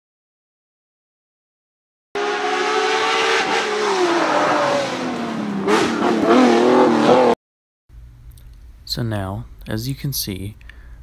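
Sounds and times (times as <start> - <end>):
car engine revving: 2.2 - 7.4.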